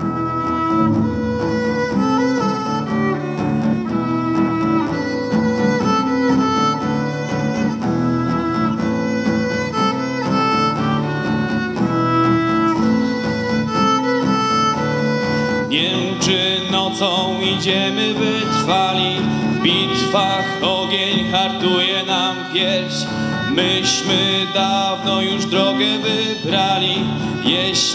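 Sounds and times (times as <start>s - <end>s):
acoustic guitar accompaniment: 0.0s - 27.9s
violin melody: 0.0s - 27.9s
people singing: 15.7s - 27.9s.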